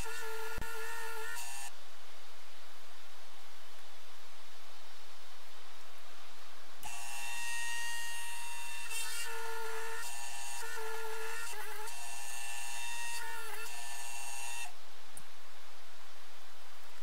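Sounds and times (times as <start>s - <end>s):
lathe motor whine: 0.0s - 1.7s, 6.8s - 14.7s.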